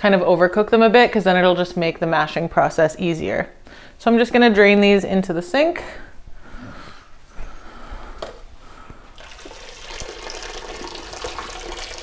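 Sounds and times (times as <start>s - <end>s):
water pouring into a sink: 9.2s - 12.0s.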